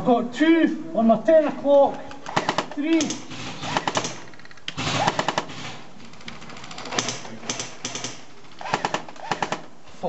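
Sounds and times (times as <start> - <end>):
airsoft guns firing bursts: 2.2 - 5.8, 6.9 - 9.8.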